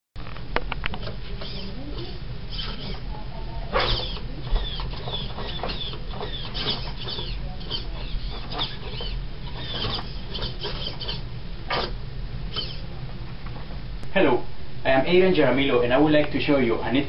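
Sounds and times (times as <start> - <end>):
steady low hum: 0.2 - 17.0
servos whirring: 0.9 - 12.9.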